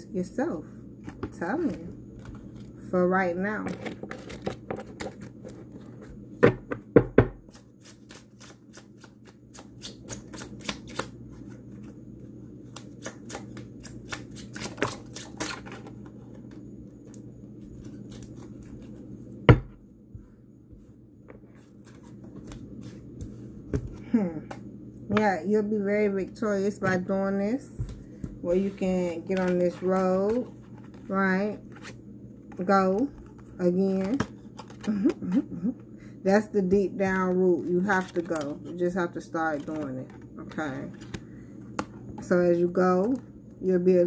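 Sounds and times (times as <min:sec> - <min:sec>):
faint steady hum: 0:00.0 - 0:44.0
cards being shuffled: 0:07.5 - 0:11.9, 0:28.6 - 0:32.0, 0:37.6 - 0:38.8, 0:39.4 - 0:41.2.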